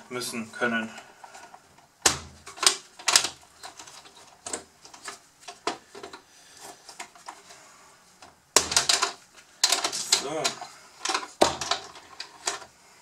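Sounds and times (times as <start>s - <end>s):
plastic parts clicking and knocking: 1.2s - 7.4s, 8.2s - 12.7s
plastic clatter: 1.3s - 7.4s, 8.6s - 12.7s.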